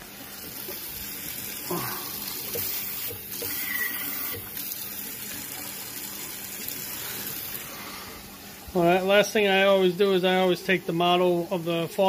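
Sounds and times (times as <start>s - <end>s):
faucet water running into sink: 0.0s - 9.8s.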